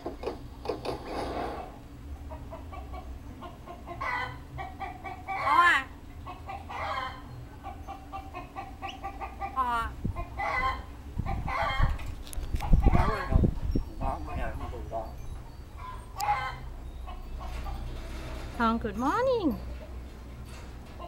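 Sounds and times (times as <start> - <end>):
myna bird calling: 2.3 - 13.4.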